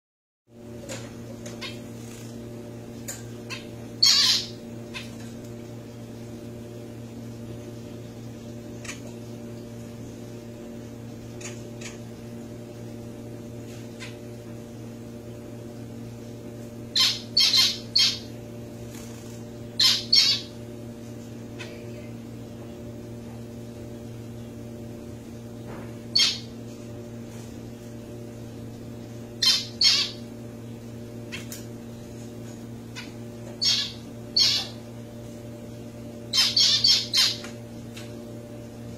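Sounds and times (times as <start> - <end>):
steady low hum: 0.5 - 38.9
finches calling: 3.5 - 5.1, 16.9 - 18.3, 19.8 - 20.6, 26.1 - 26.5, 29.4 - 30.2, 33.0 - 34.8, 36.3 - 37.5.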